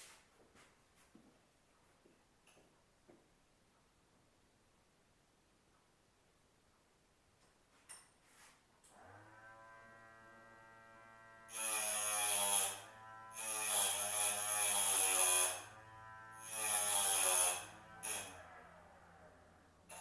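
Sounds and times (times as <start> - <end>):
grinder motor hum: 9.0 - 20.0
grinding wheel cutting metal ring: 11.5 - 19.0.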